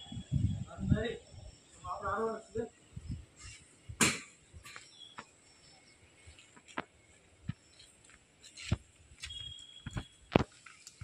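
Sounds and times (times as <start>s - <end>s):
footsteps on concrete: 6.3s - 11.0s.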